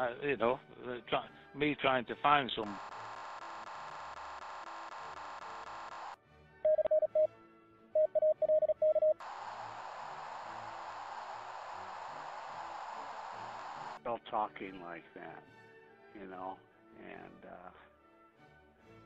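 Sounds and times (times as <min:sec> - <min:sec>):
radio static hiss: 0:02.6 - 0:06.2, 0:09.2 - 0:14.0
steady radio buzz: 0:02.6 - 0:06.2, 0:09.2 - 0:14.0
morse code tone: 0:06.7 - 0:07.3, 0:08.0 - 0:09.2.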